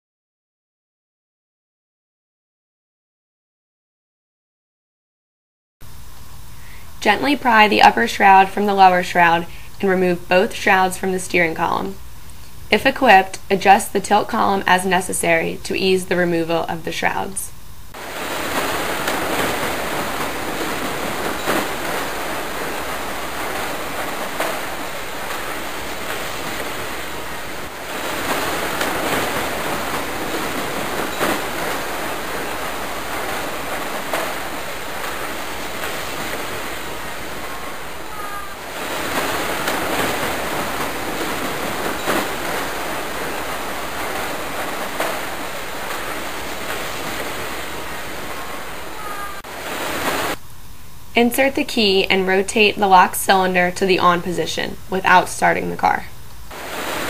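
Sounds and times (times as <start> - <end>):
loud rushing hiss: 17.8 - 50.4.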